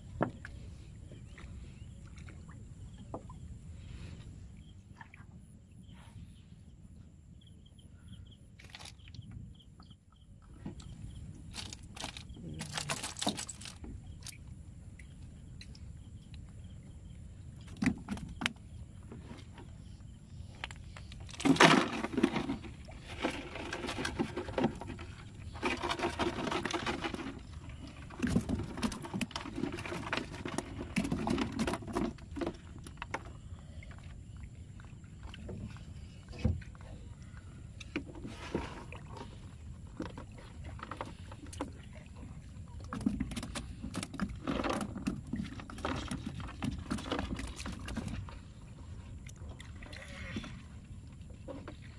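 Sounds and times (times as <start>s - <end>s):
knocks and rattles in wooden boat: 0.0s - 3.5s, 8.6s - 14.4s, 17.5s - 19.9s, 20.5s - 34.2s, 35.2s - 48.7s, 49.4s - 51.9s.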